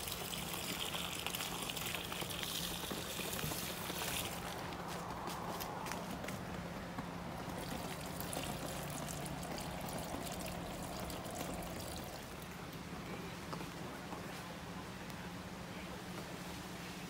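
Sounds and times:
water pouring from jug: 0.0 - 4.7, 7.5 - 12.5.

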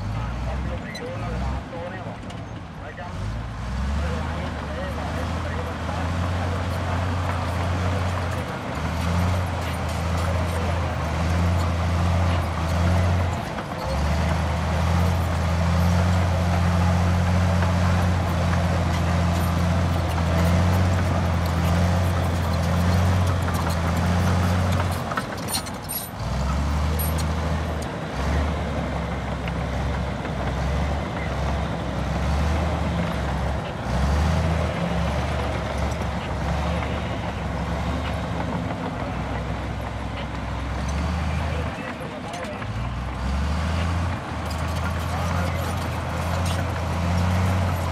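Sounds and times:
bulldozer diesel engine under load: 0.0 - 47.9.

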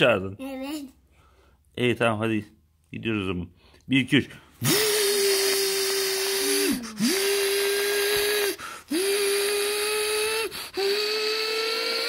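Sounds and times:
quick breaths: 3.6 - 11.7
person humming engine noise: 4.8 - 12.0.

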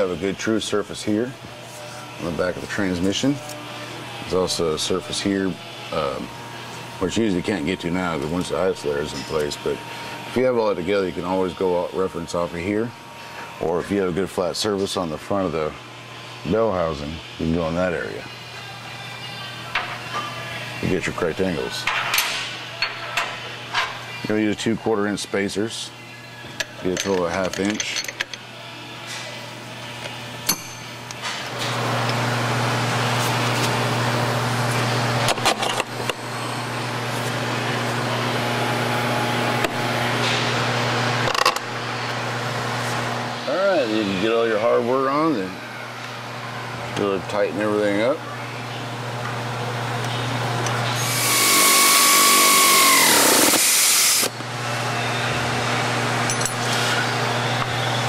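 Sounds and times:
machine hum with hiss: 0.0 - 26.8, 27.4 - 58.0
power tool tightening bolt: 51.0 - 54.3.

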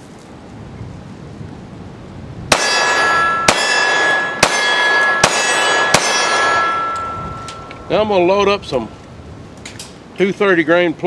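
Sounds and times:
pistol shots: 2.5 - 7.2
metallic clanging ring: 2.5 - 9.1.

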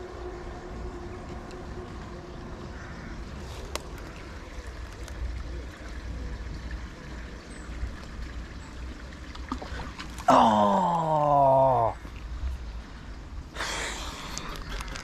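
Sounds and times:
river water trickling: 0.0 - 15.0.

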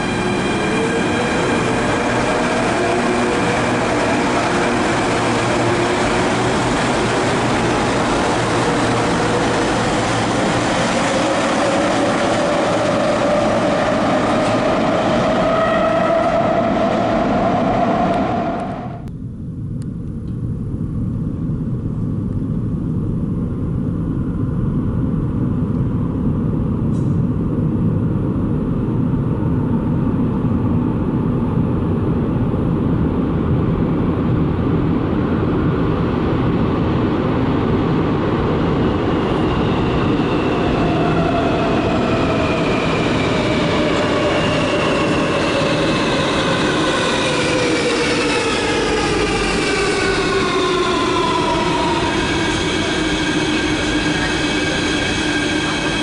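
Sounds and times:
train whine falling in pitch: 0.0 - 19.1, 38.9 - 56.0
train rumble in tunnel: 0.0 - 56.0.

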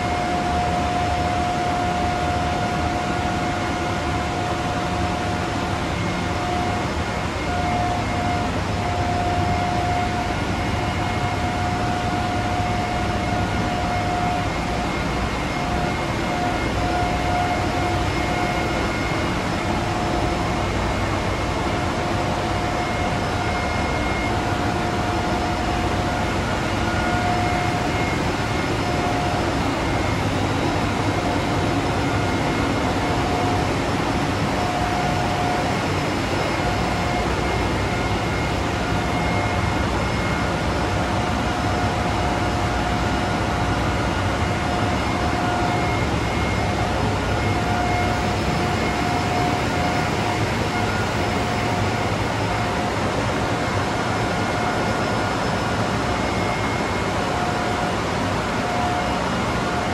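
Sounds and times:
constant machine whine: 0.0 - 59.9
engine room machinery din: 0.0 - 59.9.

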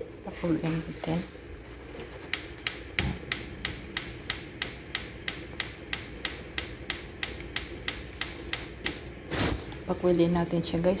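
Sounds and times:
gas igniter clicking: 2.3 - 9.0.

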